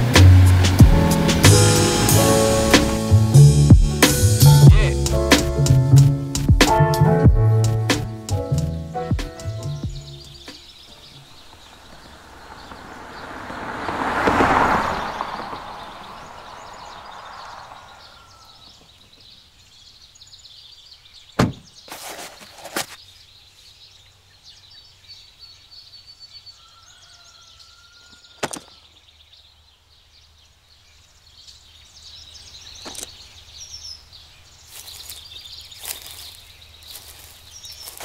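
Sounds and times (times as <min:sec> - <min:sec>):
faint bird chirps: 0:15.7 - 0:38.0
camping gear knocking and thudding: 0:21.4 - 0:23.0.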